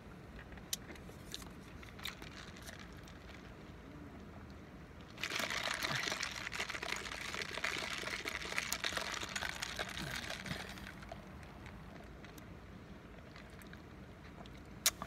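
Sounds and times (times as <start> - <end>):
drink slurped through a straw: 5.2 - 11.6.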